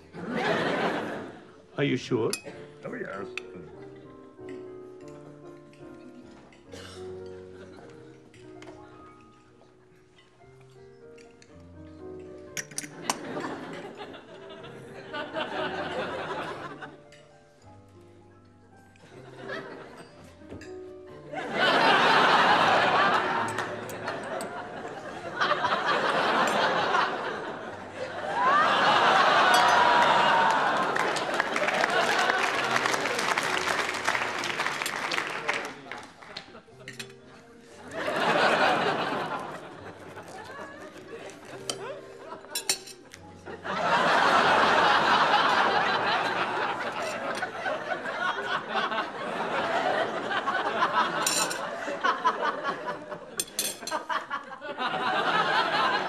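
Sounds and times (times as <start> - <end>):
studio audience laughing: 0.1 - 1.5, 13.2 - 17.0, 21.3 - 35.6, 37.9 - 42.5, 43.4 - 56.0
murmur of diners: 36.4 - 54.0.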